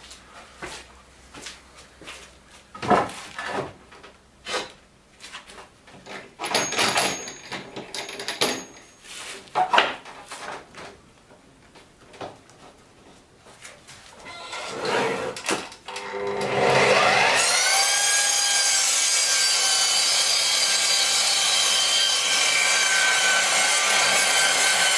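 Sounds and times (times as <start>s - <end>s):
saw scraping slide: 14.4s - 15.4s.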